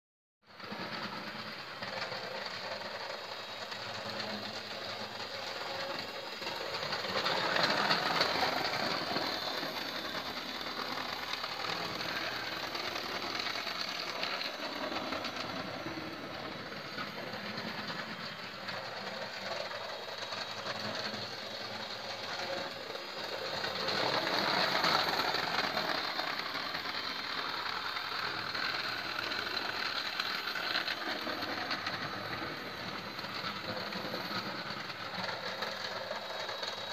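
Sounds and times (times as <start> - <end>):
small electric motors whirring: 1.6 - 36.9.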